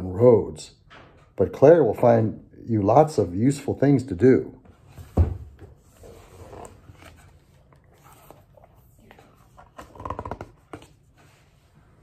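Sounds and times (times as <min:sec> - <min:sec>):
book pages turning: 0:05.7 - 0:12.0.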